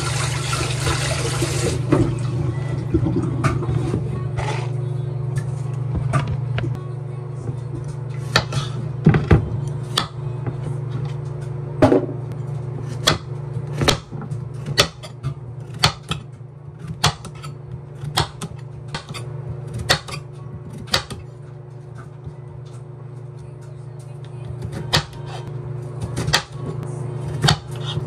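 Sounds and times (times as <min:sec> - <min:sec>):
soft background music: 0:01.0 - 0:12.4, 0:19.5 - 0:27.7
knife chopping on wooden board: 0:12.9 - 0:15.1, 0:15.7 - 0:16.2, 0:16.9 - 0:19.2, 0:27.3 - 0:28.0.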